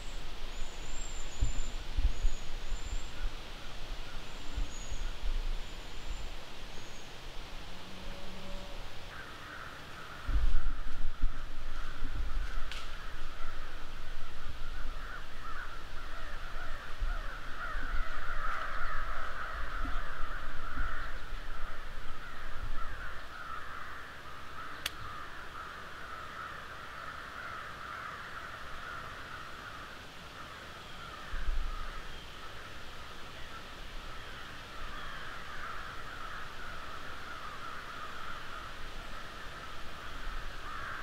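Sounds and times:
crows cawing: 9.1 - 41.0.

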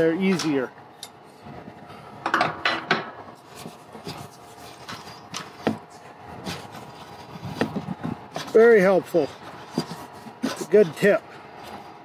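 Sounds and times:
metal clicks knocks and scrapes: 2.2 - 10.9.

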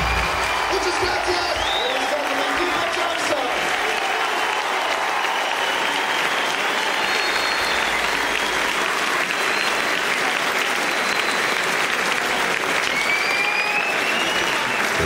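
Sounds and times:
audience applauding: 0.0 - 15.0
thin rising whistle: 7.0 - 8.0.

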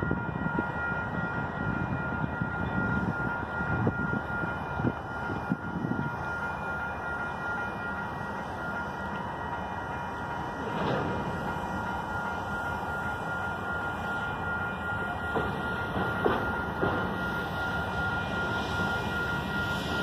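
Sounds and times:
freight train rumbling: 0.0 - 20.0
railroad crossing bell ringing: 0.0 - 20.0.

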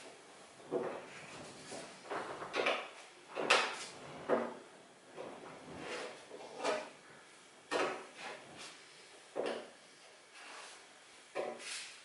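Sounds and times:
spreader scraping filler on metal: 5.8 - 6.9.

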